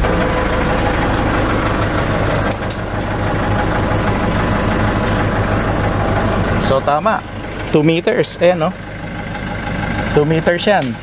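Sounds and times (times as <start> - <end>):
pickup truck engine idling: 0.0 - 11.0.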